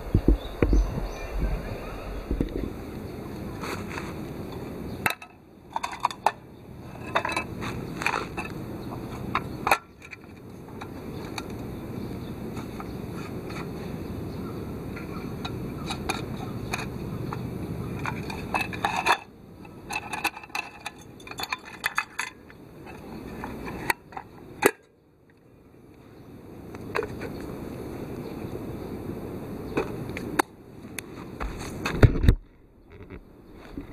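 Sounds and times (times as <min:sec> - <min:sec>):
sheet metal clinks and scrapes: 0:19.9 - 0:23.0.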